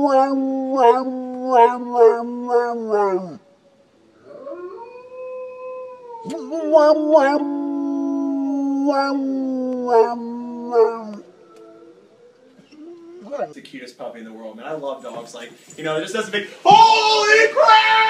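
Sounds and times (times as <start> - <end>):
dog howling: 0.0 - 3.5, 4.2 - 13.5.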